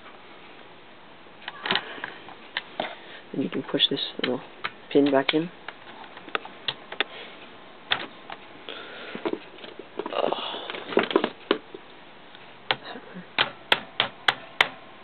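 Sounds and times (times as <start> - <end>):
clicks and rustling of handling: 4.2 - 12.8
hammer tapping a pin: 13.4 - 14.8.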